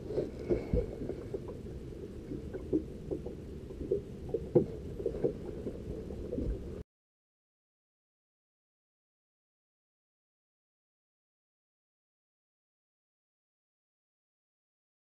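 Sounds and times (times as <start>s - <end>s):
water lapping around boat: 0.0s - 6.8s.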